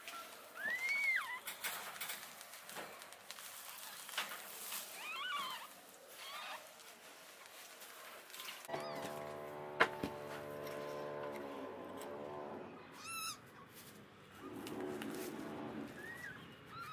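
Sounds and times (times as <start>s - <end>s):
kittens mewing: 12.5s - 13.5s.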